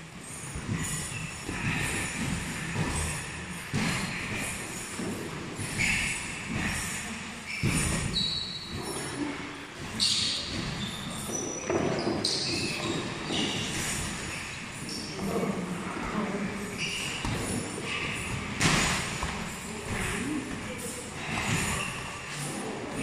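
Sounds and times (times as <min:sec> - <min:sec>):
shoes squeaking on canvas: 0:03.2 - 0:09.2, 0:09.8 - 0:15.4
thuds of steps and punches: 0:07.6 - 0:08.2.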